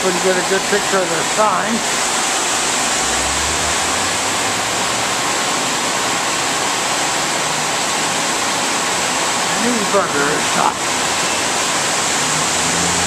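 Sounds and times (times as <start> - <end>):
steady rushing hiss: 0.2 - 7.0.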